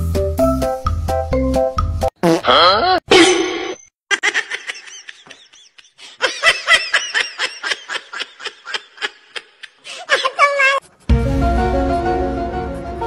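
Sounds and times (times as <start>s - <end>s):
person laughing in high bursts: 4.1s - 10.8s.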